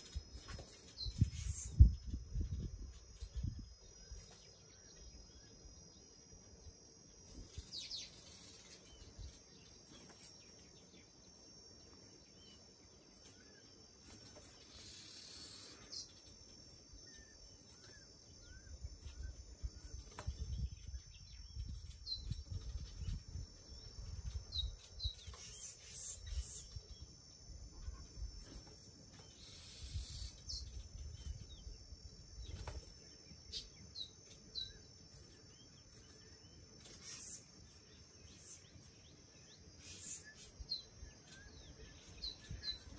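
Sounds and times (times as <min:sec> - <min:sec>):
insect trilling: 0:00.0 - 0:38.7, 0:39.3 - 0:42.9
bird chirps: 0:00.0 - 0:42.9.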